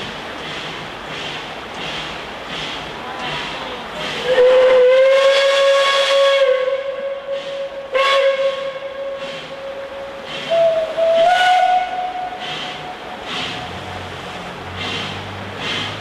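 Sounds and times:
steam engine exhaust chuffs: 0.0s - 16.0s
steam locomotive whistle: 4.2s - 13.8s.

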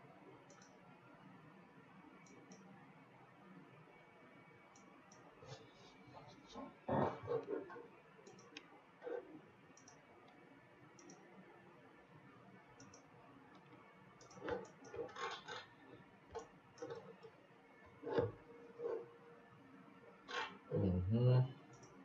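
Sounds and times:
computer mouse clicks: 0.4s - 0.8s, 2.2s - 2.7s, 7.3s - 9.2s, 9.8s - 10.4s, 11.0s - 11.3s, 12.8s - 15.7s, 21.7s - 22.0s.

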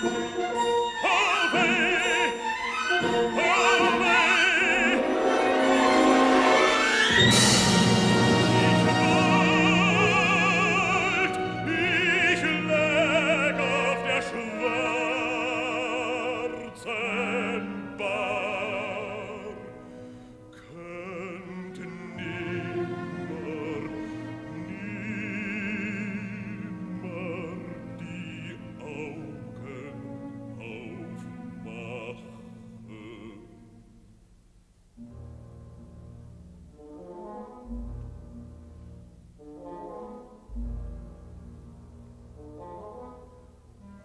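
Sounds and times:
baritone singing: 0.0s - 34.1s
symphony orchestra: 0.0s - 34.1s, 35.0s - 44.0s.

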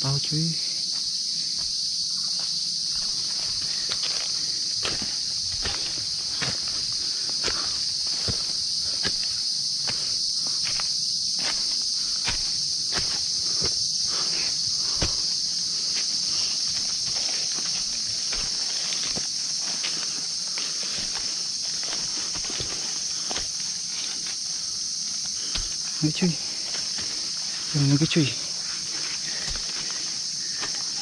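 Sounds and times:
high-pitched insect chorus: 0.0s - 31.0s
footsteps crunching: 0.8s - 31.0s.

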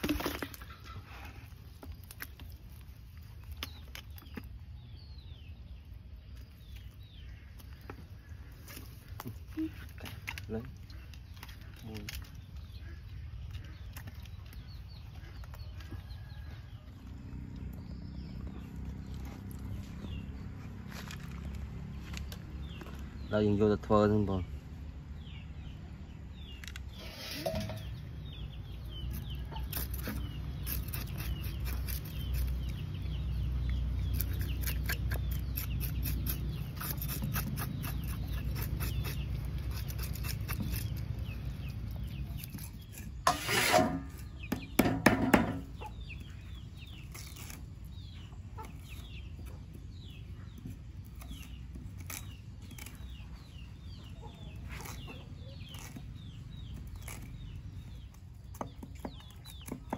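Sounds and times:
chickens clucking: 0.0s - 1.8s, 43.1s - 47.0s, 48.0s - 50.7s, 53.1s - 56.8s.

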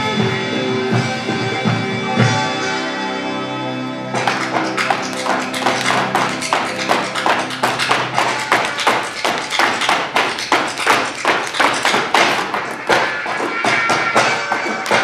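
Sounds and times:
boots stamping on wooden stage: 4.2s - 15.0s.

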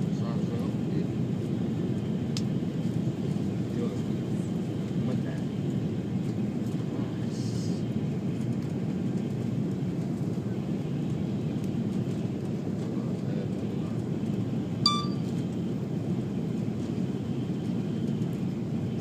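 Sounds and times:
airliner cabin engine rumble: 0.0s - 19.0s
high electronic beep: 14.9s - 15.3s.

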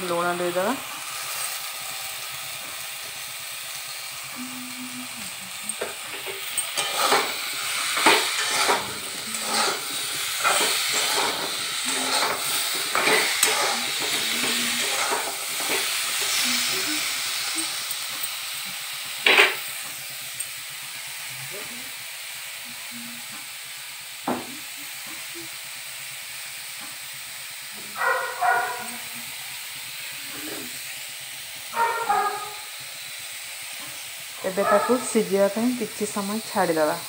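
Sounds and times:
vegetables sizzling in oil: 0.0s - 37.0s
scraping against wok: 5.5s - 18.3s.

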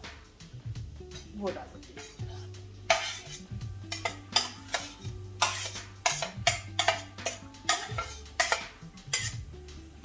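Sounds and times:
background music with bass: 0.0s - 10.0s
spoon scraping a cooking pan: 1.1s - 9.5s.

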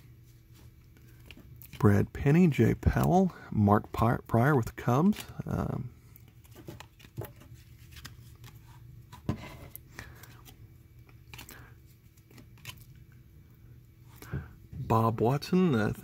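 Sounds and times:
cards sliding and clicking: 6.2s - 12.9s.

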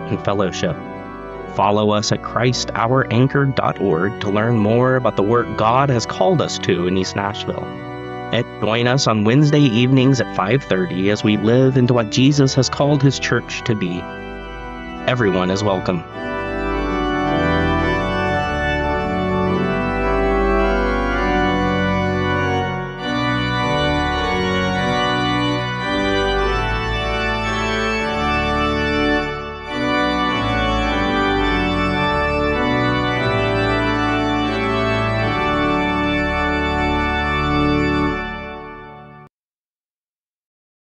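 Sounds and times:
organ playing slow chords: 0.0s - 39.3s.

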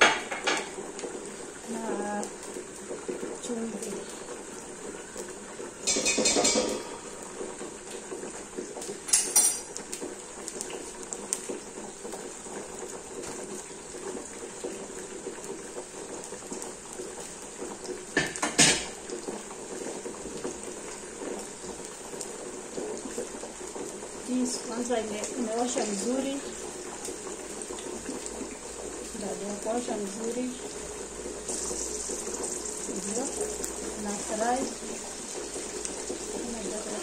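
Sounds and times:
pan simmering hiss: 0.0s - 37.0s.

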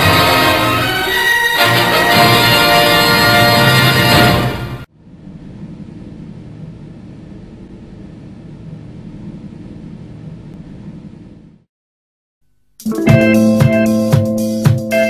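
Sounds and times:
orchestral fanfare: 0.0s - 4.9s, 12.9s - 14.2s
low rumbling noise: 4.9s - 11.7s.

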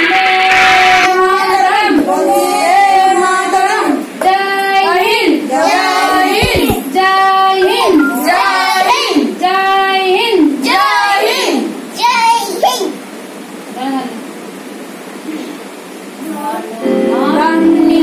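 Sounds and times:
child singing: 7.6s - 9.3s.

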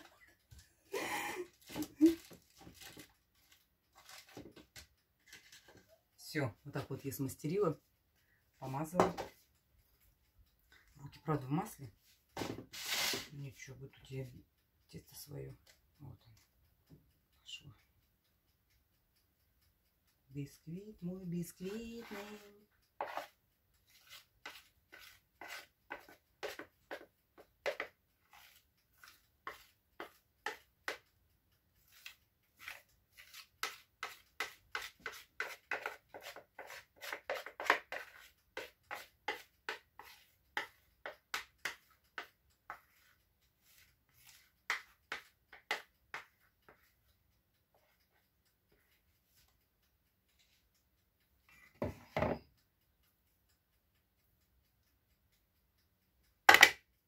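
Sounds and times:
spoon scraping bowl: 5.2s - 5.9s, 12.7s - 13.3s, 21.7s - 31.0s, 31.8s - 46.9s.

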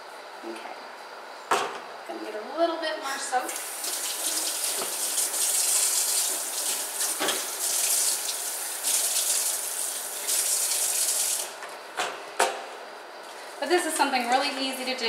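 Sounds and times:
tap water splashing into sink: 3.5s - 7.5s.

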